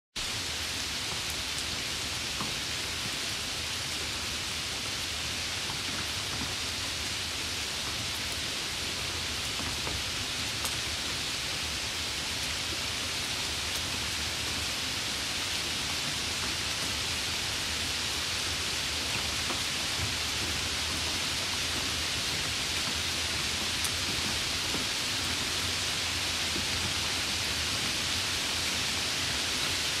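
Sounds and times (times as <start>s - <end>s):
steady rain falling: 0.2s - 30.0s
rain drop ticks: 9.4s - 10.9s, 18.5s - 28.0s.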